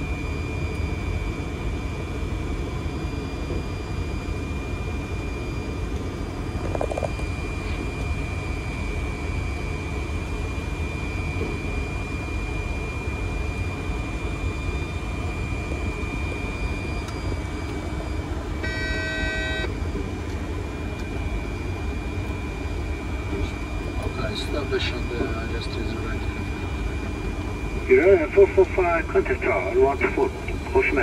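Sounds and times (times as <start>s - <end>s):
thin high whine: 14.4s - 19.8s
short electronic tone: 18.6s - 19.7s
cockpit rush and rumble: 23.1s - 31.0s.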